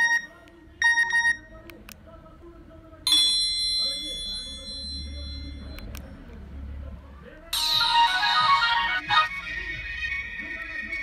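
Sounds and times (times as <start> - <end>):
bell-like phone chime: 3.1 - 5.9.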